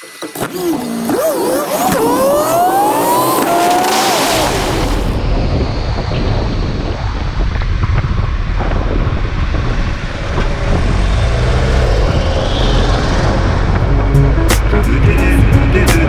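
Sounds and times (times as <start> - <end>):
road noise: 0.0 - 16.0
wind buffeting microphone: 4.1 - 16.0.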